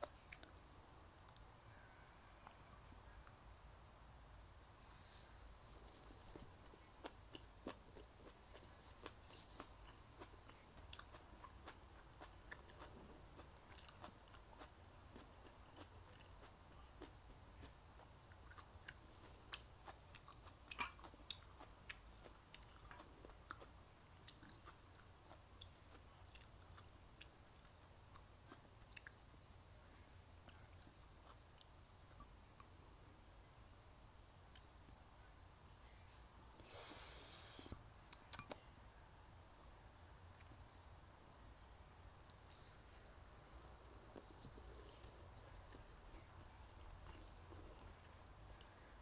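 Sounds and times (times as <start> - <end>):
person chewing food: 5.6 - 29.6, 44.0 - 49.0
wet mouth clicks: 36.6 - 38.6.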